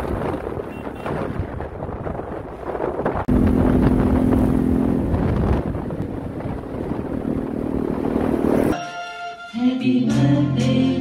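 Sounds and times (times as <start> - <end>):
wind buffeting microphone: 0.0 - 8.8
motorcycle engine running: 3.3 - 8.8.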